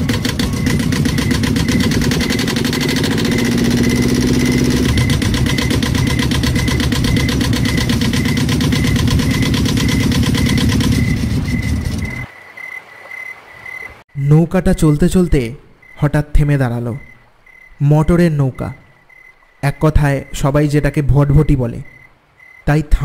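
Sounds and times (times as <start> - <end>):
motorboat engine chugging: 0.0 - 12.3.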